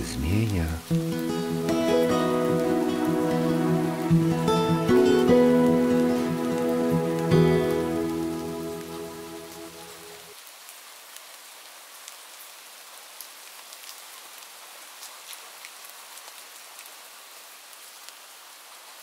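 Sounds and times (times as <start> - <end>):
steady rain: 0.0 - 19.0
sustained music chord: 0.9 - 10.3.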